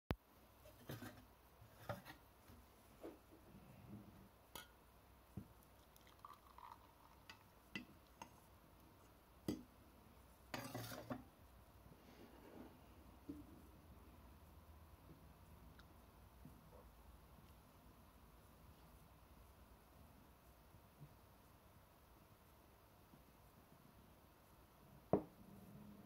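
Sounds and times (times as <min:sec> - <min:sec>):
espresso pouring into mug: 0:05.7 - 0:08.3
jug and mug clinking: 0:05.8 - 0:08.4, 0:10.5 - 0:11.2.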